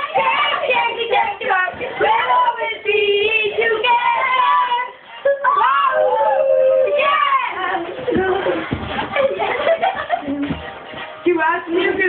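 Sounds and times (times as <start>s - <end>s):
child singing: 0.0s - 5.9s, 6.8s - 8.6s.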